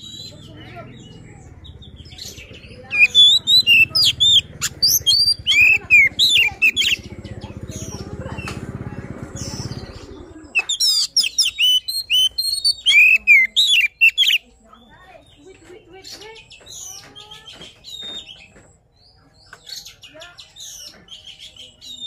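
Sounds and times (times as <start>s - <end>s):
bird singing whistles and chirps: 1.9s - 7.4s, 9.5s - 14.4s.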